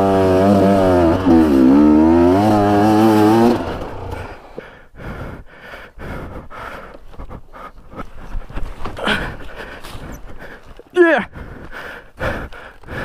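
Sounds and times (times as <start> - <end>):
motorcycle engine revving: 0.0 - 4.6.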